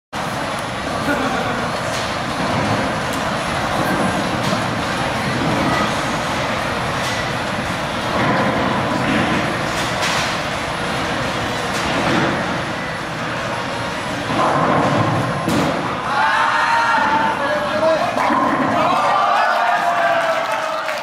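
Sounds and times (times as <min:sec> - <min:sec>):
bowling balls rolling down lanes: 0:01.7 - 0:16.1, 0:18.1 - 0:20.4.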